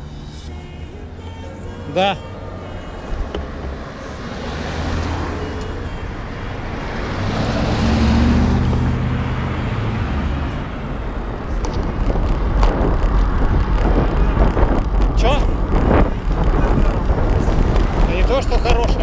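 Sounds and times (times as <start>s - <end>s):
car driving past: 0.0s - 10.8s
wind rumble on microphone: 9.7s - 19.0s.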